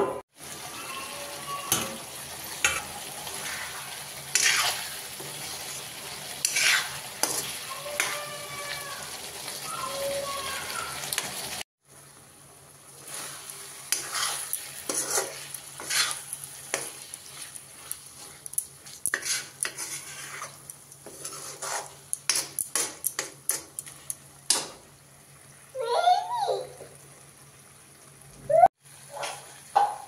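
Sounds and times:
oil sizzling: 0.3 - 30.0
spoon scraping metal pan: 2.6 - 5.6, 6.4 - 8.3, 13.1 - 23.8.

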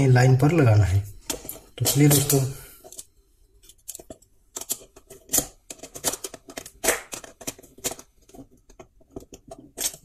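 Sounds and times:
screwdriver scraping: 3.6 - 10.0.

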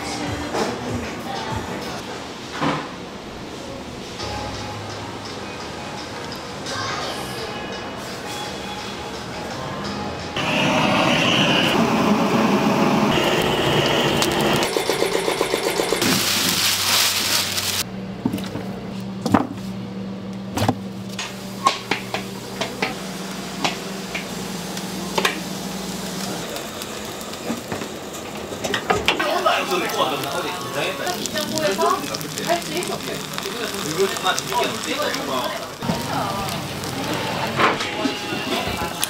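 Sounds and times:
gas torch hissing: 10.4 - 17.8, 21.3 - 39.0.

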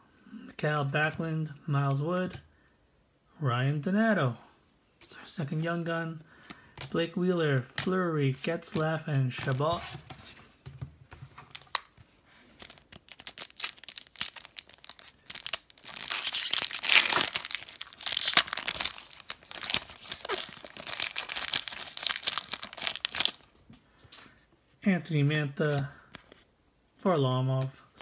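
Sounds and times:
wrapper rustling and clicking: 11.2 - 23.6
foil wrapper tearing and crinkling: 12.5 - 23.5.

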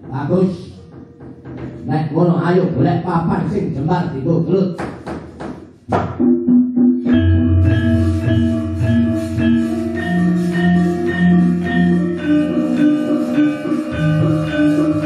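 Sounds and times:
gamelan playing: 6.2 - 15.0.

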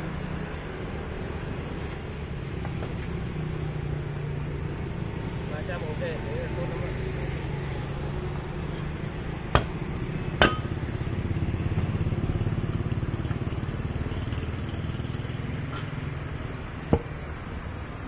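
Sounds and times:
sharp metal knocks: 9.5 - 9.8, 10.4 - 10.8, 16.9 - 17.2.

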